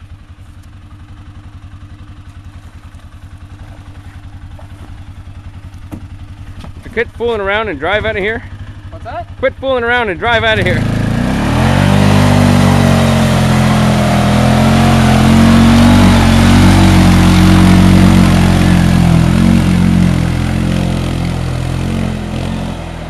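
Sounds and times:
atv engine revving: 0:00.0 - 0:23.0
mud and water splashing: 0:01.8 - 0:07.2, 0:10.6 - 0:23.0.

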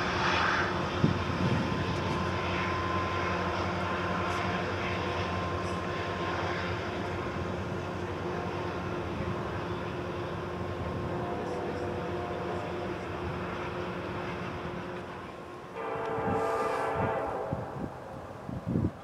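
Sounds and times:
diesel locomotive engine drone: 0:00.0 - 0:19.0.

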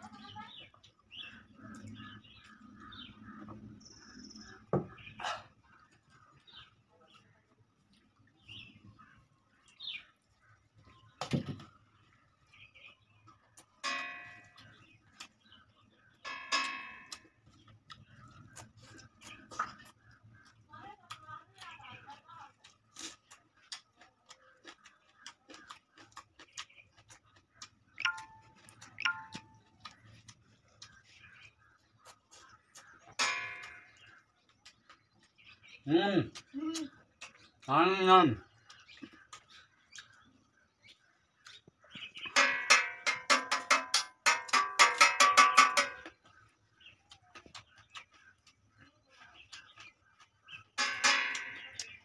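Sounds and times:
wet chewing clicks: 0:00.2 - 0:13.8, 0:14.4 - 0:16.2, 0:17.0 - 0:42.4, 0:46.0 - 0:52.0
metallic tings: 0:13.8 - 0:14.7, 0:16.3 - 0:17.2, 0:28.0 - 0:29.6, 0:33.2 - 0:33.9, 0:42.4 - 0:46.0, 0:50.8 - 0:51.9.

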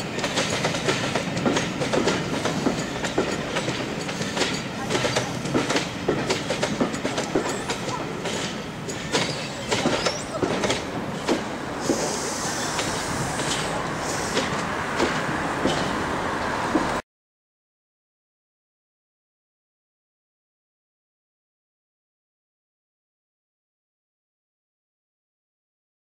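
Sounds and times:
train wheels clacking over rail joints: 0:00.0 - 0:17.0
high hissing wheel squeal: 0:11.8 - 0:14.7.

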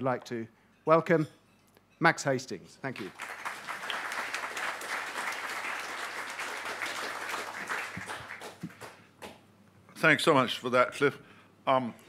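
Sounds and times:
audience applauding: 0:03.0 - 0:09.1.

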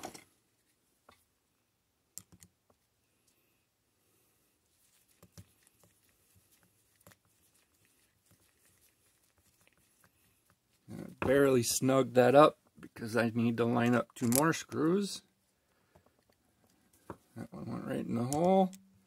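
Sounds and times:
faint clicks of small metal parts: 0:14.1 - 0:14.8, 0:15.9 - 0:17.1, 0:18.2 - 0:18.9.

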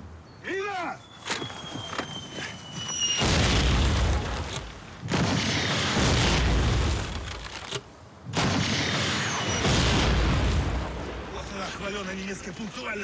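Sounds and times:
shell explosions with rumble: 0:03.2 - 0:07.3, 0:08.3 - 0:11.5.

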